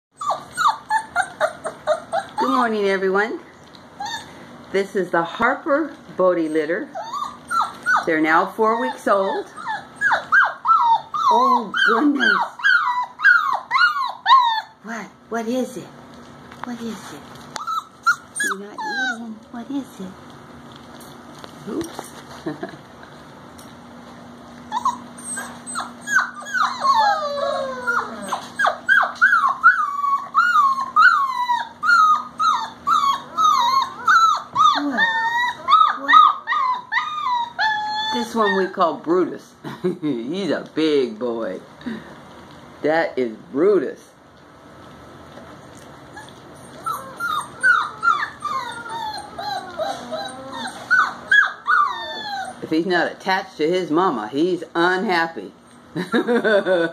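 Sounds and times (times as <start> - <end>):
puppy whining and crying: 0.1 - 2.7, 3.9 - 4.5, 6.4 - 14.8, 17.5 - 19.6, 24.5 - 39.0, 45.5 - 52.7, 55.6 - 56.0.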